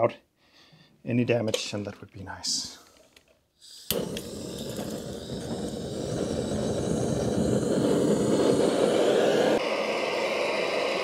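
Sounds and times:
blowtorch roaring: 3.6s - 11.0s.

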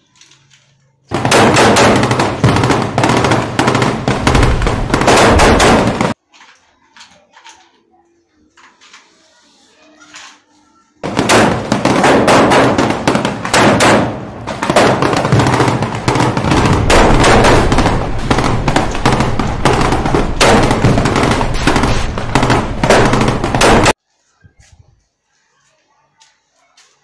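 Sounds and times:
automatic gunfire: 1.1s - 6.2s, 11.0s - 24.0s.

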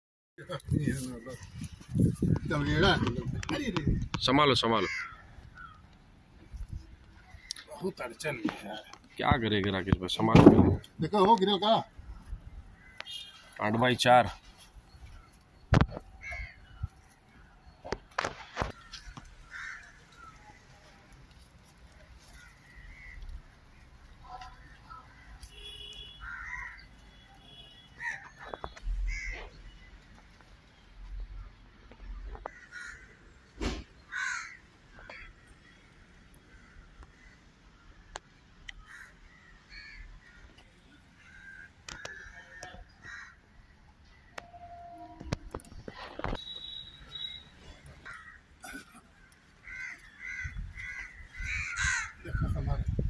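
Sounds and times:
birds calling: 0.5s - 53.0s
crows cawing: 3.8s - 5.9s, 12.7s - 13.4s, 15.0s - 17.0s, 18.2s - 20.7s, 22.2s - 23.6s, 24.4s - 29.8s, 32.4s - 33.3s, 34.0s - 43.6s, 46.6s - 52.6s
wooden planks knocking: 10.3s - 10.9s.

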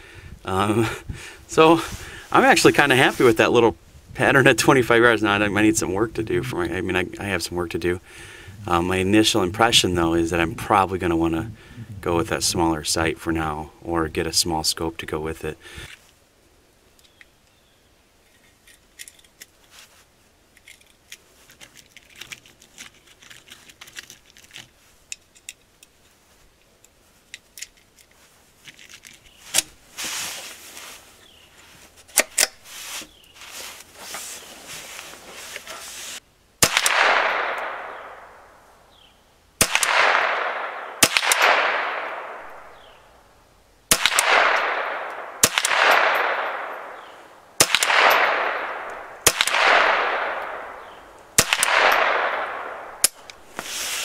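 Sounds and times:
light handling clicks and knocks: 20.5s - 29.8s
rifle shots: 36.6s - 38.6s, 39.6s - 42.9s, 43.9s - 53.3s.

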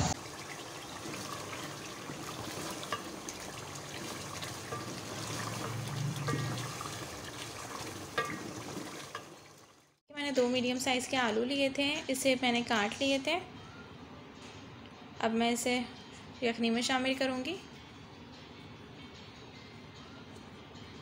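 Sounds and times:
stew bubbling in a pot: 0.1s - 10.0s
wooden spoon stirring: 0.2s - 9.7s.

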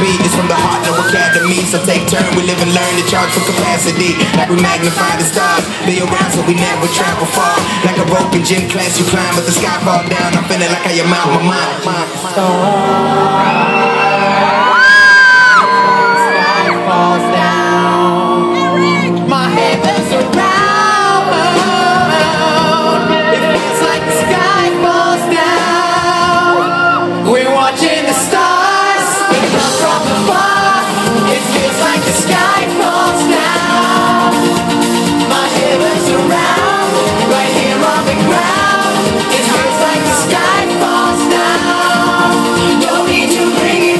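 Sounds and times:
percussion beat: 0.0s - 11.4s, 29.2s - 43.9s
live pop music: 0.0s - 43.9s
person singing wordless vocals: 0.0s - 43.9s.

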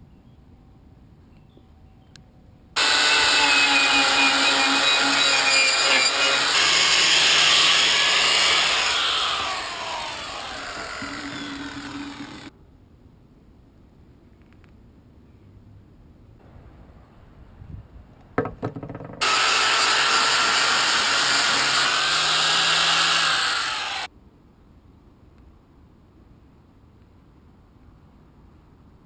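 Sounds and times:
angle grinder grinding steel: 2.8s - 12.5s, 19.2s - 24.1s.

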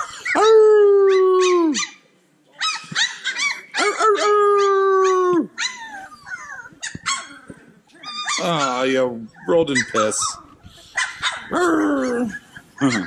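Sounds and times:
puppies howling: 2.6s - 7.4s, 8.0s - 13.0s
puppies yipping: 2.6s - 13.0s.

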